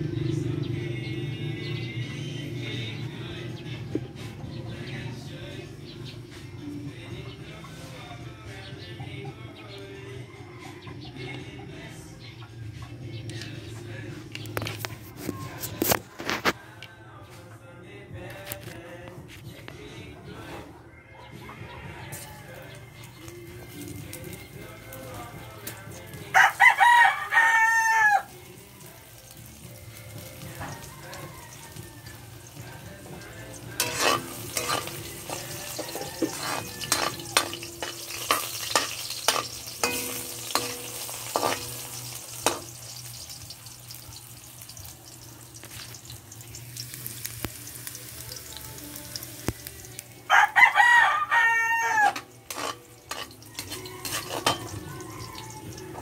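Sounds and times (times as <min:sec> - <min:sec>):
food sizzling: 0:22.2 - 0:56.0
rooster crowing: 0:26.3 - 0:28.4, 0:30.4 - 0:32.8, 0:34.7 - 0:37.7, 0:50.3 - 0:52.3, 0:53.5 - 0:56.0
metal spatula scraping wok: 0:33.2 - 0:43.8, 0:52.0 - 0:55.5.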